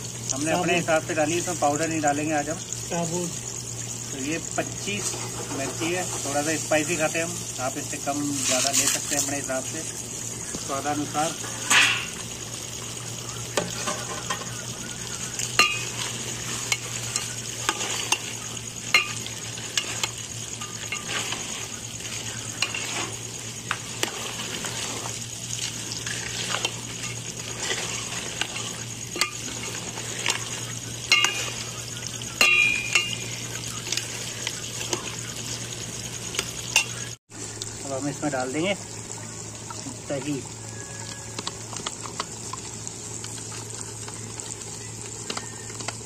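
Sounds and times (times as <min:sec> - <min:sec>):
meat sizzling: 0:00.0 - 0:46.0
ladle scraping pot: 0:15.6 - 0:31.7.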